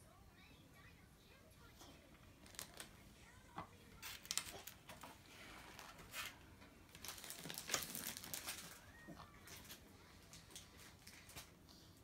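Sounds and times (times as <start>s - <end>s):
paper wrappers crinkling: 2.3s - 3.0s, 3.8s - 11.6s.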